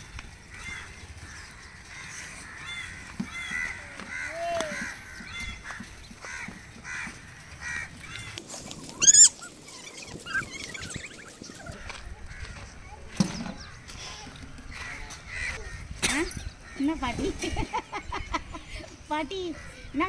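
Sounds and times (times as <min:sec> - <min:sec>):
birds cawing: 0:00.5 - 0:12.7
sharp high bird cry: 0:08.4 - 0:11.8.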